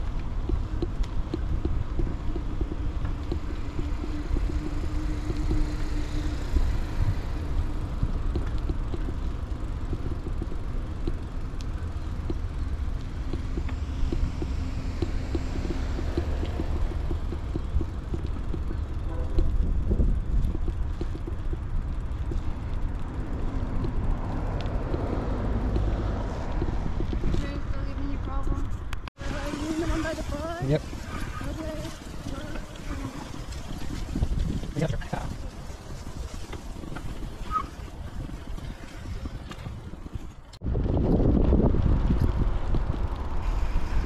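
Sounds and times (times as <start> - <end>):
bicycle rattles and clicks: 0.0 - 44.0
bicycle road noise: 0.0 - 44.0
wind on microphone: 12.7 - 44.0.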